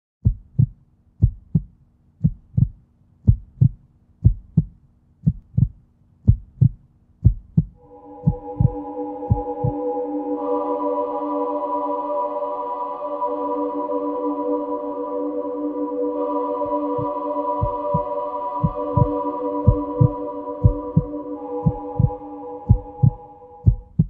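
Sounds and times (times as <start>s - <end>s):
heartbeat thumps: 0.2s - 9.8s, 17.0s - 24.0s
ambient synth chord: 7.8s - 23.8s.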